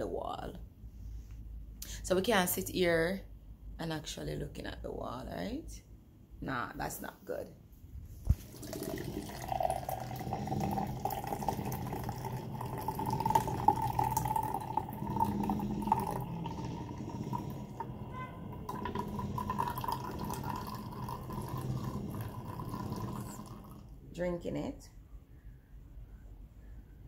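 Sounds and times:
juice pouring into a glass mug: 8.3s - 24.0s.

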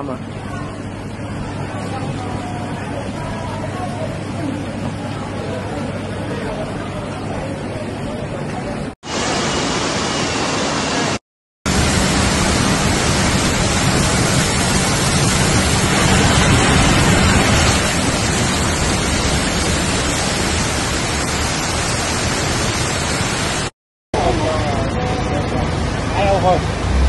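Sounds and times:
torrential rain: 9.0s - 27.0s
rushing floodwater: 9.1s - 27.0s.

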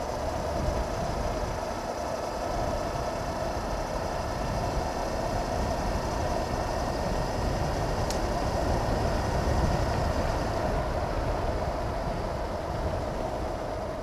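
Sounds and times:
wind noise on helmet camera: 4.2s - 14.0s.

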